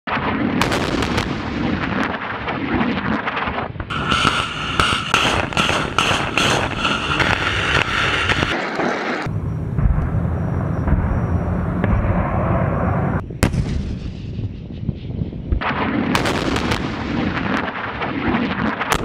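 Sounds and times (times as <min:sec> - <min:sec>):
rockets launching: 0:00.1 - 0:19.0
low rumble: 0:03.9 - 0:08.6, 0:09.2 - 0:15.8
crackle of sharp reports: 0:03.9 - 0:13.2.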